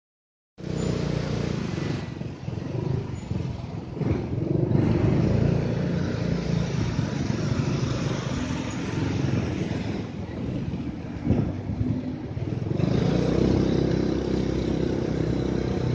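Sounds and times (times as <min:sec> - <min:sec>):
road noise rushing: 0:00.6 - 0:15.9
motorcycle engine running: 0:12.2 - 0:15.9.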